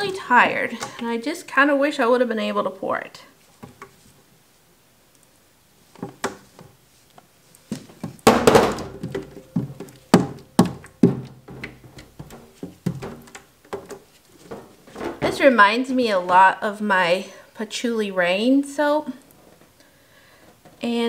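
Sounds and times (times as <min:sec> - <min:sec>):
spatula knocking on plastic pitcher: 0:08.2 - 0:13.9.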